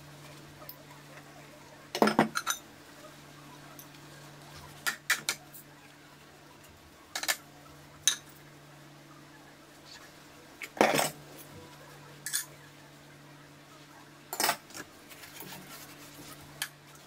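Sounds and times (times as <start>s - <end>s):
low steady hum: 0.0s - 17.0s
dishes clinking in a sink: 2.0s - 2.6s.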